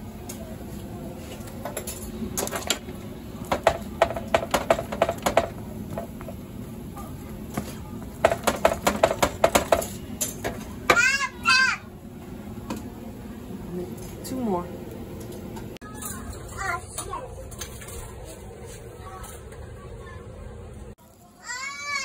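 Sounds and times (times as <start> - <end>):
metal spoon tapping on griddle: 3.5 - 6.3, 8.2 - 11.1.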